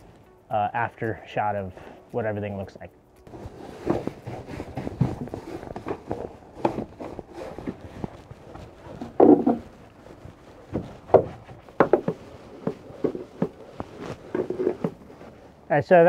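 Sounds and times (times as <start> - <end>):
deck brush scrubbing wet deck: 3.3 - 15.8.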